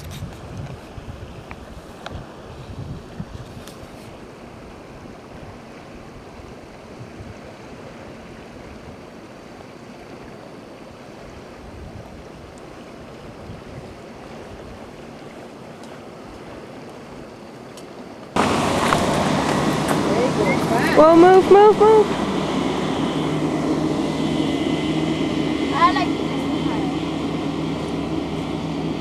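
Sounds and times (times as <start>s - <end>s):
wind noise on microphone: 0.0s - 9.1s, 11.3s - 15.0s
steady low hum: 12.2s - 29.0s.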